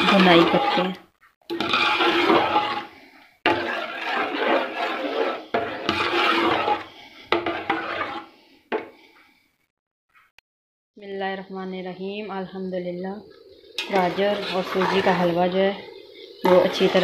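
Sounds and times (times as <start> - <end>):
metal spoon scraping steel pot: 0.0 - 8.9, 13.2 - 17.0.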